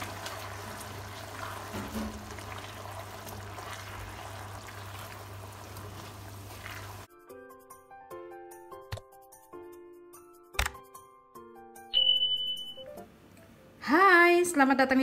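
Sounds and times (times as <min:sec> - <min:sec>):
meatballs sizzling in a pan: 0:00.0 - 0:07.1.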